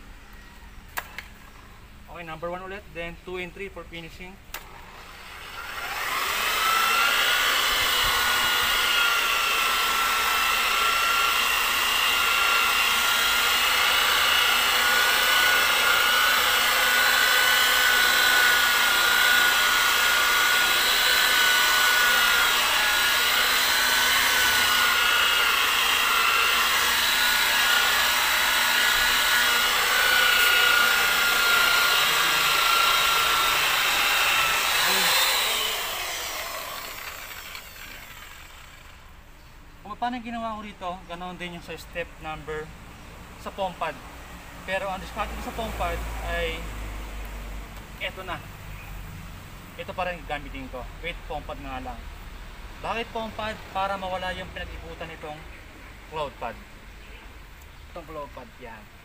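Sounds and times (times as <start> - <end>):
rotary polisher motor whine: 4.6 - 39.1.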